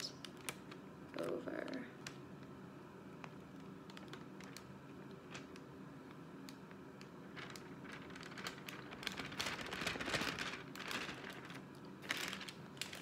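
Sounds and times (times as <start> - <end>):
plastic bag crinkling: 3.2 - 5.8, 6.9 - 13.0.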